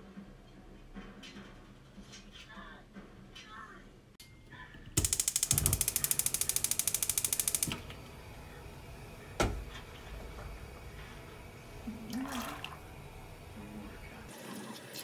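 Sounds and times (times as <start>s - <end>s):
gas stove igniter clicking: 5.0s - 10.9s
gas hissing: 5.0s - 14.3s.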